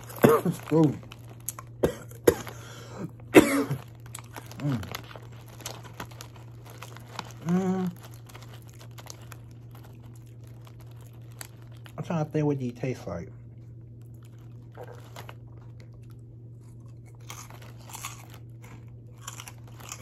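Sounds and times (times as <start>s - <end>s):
person chewing crunchy snack: 0.0s - 12.1s, 13.4s - 20.0s
snack bag crinkling: 0.0s - 20.0s
throat-clearing cough: 0.2s - 0.6s, 1.8s - 3.8s
person humming mm: 7.4s - 8.0s.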